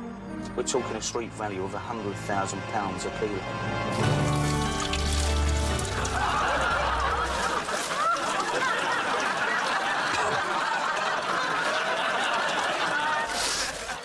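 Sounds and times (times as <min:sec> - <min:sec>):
audience laughing: 0:05.8 - 0:14.0.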